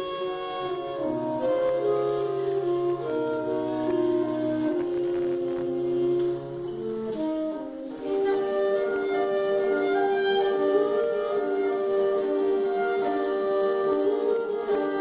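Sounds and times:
saxophone quartet playing: 0:00.0 - 0:15.0.

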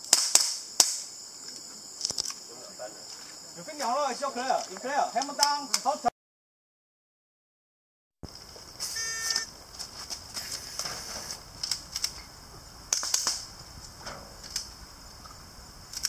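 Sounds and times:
steady high hiss: 0:00.0 - 0:06.1, 0:08.2 - 0:16.0
short beep: 0:08.8 - 0:09.5.

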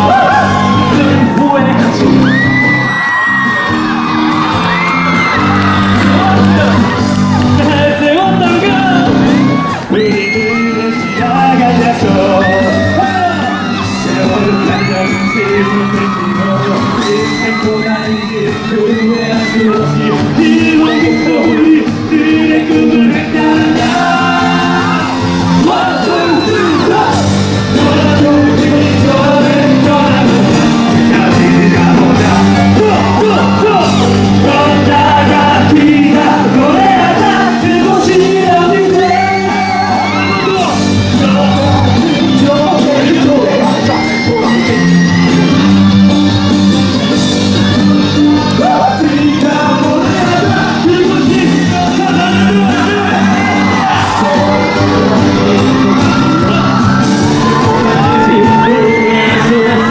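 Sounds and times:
shouts and whoops: 0:00.0 - 0:07.6, 0:08.9 - 0:21.8, 0:23.7 - 0:27.3, 0:32.1 - 0:34.4, 0:37.4 - 0:46.0, 0:47.9 - 0:59.9
cast singing into microphones: 0:00.0 - 0:59.9
loud amplified music: 0:00.0 - 0:59.9.

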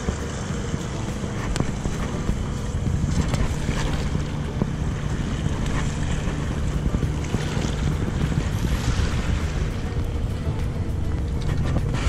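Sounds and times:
waves splashing against rocks: 0:00.0 - 0:12.0
wind buffeting microphone: 0:00.0 - 0:12.0.

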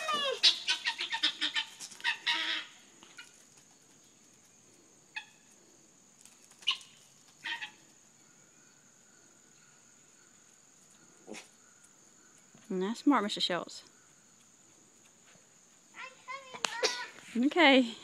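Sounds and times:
guinea fowl harsh calls: 0:00.1 - 0:03.3, 0:06.6 - 0:07.8.

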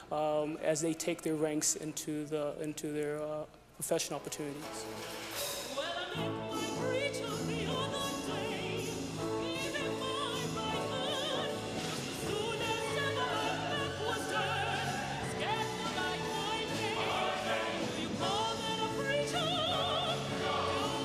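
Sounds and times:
woman singing classical style: 0:05.8 - 0:21.0.

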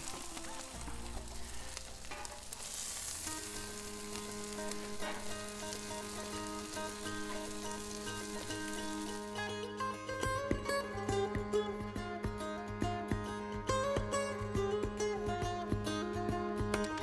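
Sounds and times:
chicken sizzling on griddle: 0:00.0 - 0:09.6
background music: 0:00.0 - 0:17.0.

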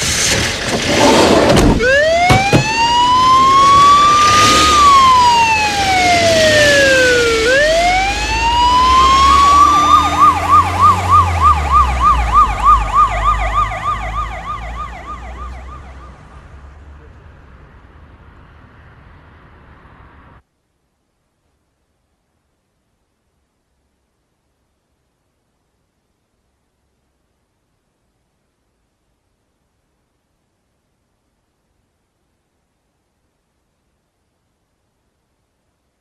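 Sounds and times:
sharp knocks: 0:00.7 - 0:02.8
police siren wailing and yelping: 0:01.6 - 0:16.3.

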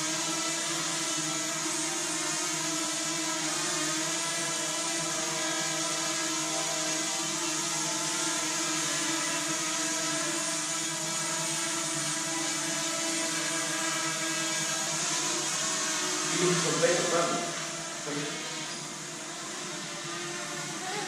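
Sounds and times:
drone propellers buzzing: 0:00.0 - 0:21.0.

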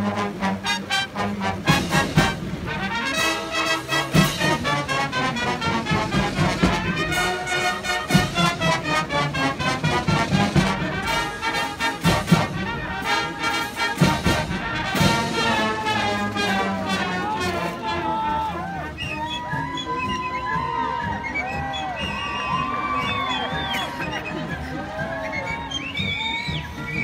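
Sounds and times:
brass chords: 0:00.0 - 0:19.0
drum hits: 0:01.6 - 0:15.8.

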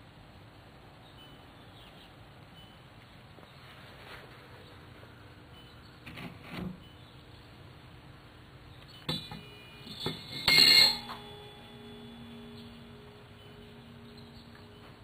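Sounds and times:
light metal clinks: 0:08.9 - 0:11.8
metal grate clanking in steel pan: 0:09.1 - 0:11.4
steel shell ringing: 0:09.1 - 0:14.8.

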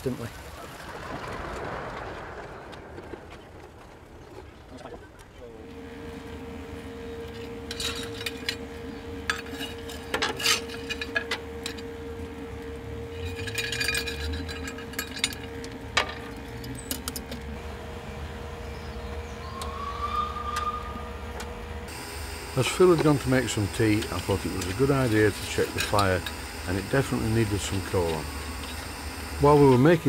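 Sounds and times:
blower fan humming: 0:00.0 - 0:30.0
steel tongs clinking: 0:13.2 - 0:15.5.

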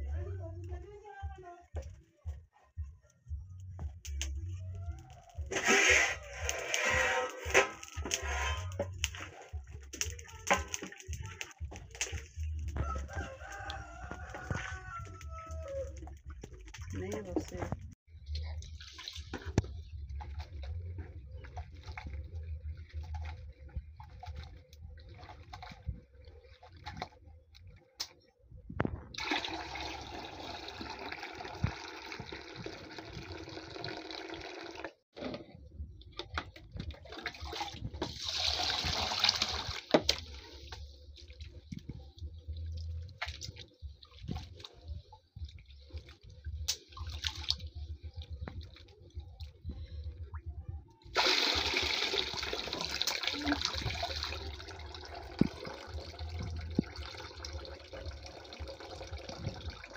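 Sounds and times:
water pouring into bucket: 0:05.5 - 0:17.7, 0:29.2 - 0:35.0, 0:37.0 - 0:41.6, 0:51.1 - 0:59.9
water sloshing with rice: 0:18.6 - 0:27.6.

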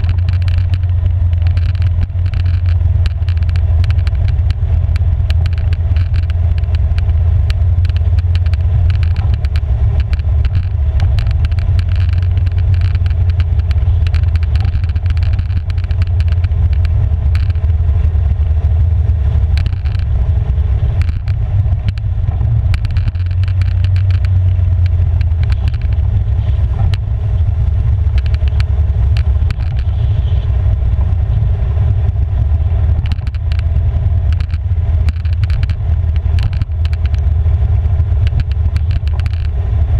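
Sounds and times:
tyres on gravel: 0:00.0 - 0:18.5
engine rumbling: 0:00.0 - 0:39.9
small clicks and rattles: 0:00.0 - 0:39.9.

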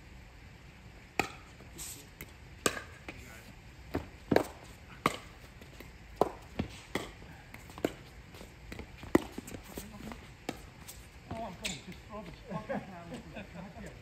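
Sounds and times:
paddles hitting plastic ball: 0:03.9 - 0:09.8.

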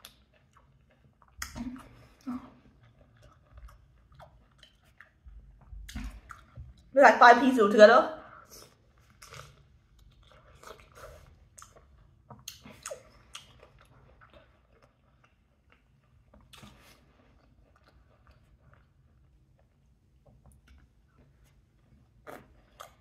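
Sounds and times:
person chewing wet mouth clicks: 0:00.0 - 0:02.2, 0:08.6 - 0:16.8, 0:22.3 - 0:23.0.

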